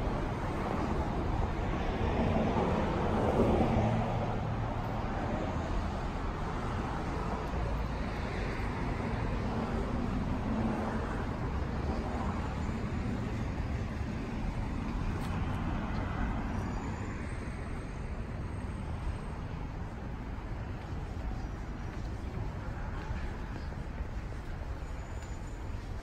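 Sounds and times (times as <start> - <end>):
passing cars: 0.0 - 26.0.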